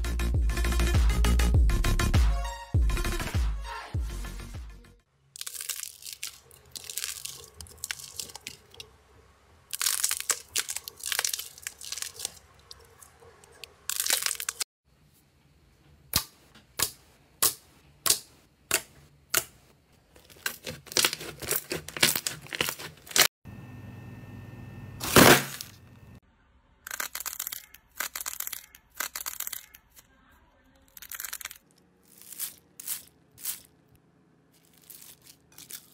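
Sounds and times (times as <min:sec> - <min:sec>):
clay crackling and tearing: 0:05.4 - 0:08.9, 0:09.7 - 0:14.7, 0:18.0 - 0:23.3, 0:26.9 - 0:30.0, 0:30.8 - 0:33.8, 0:34.6 - 0:35.9.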